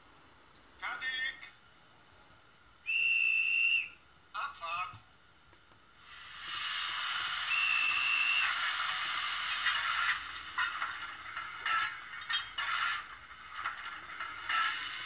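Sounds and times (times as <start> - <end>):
steam whistle blast: 2.9 - 4.0, 7.4 - 8.7
steam hiss: 6.0 - 12.0.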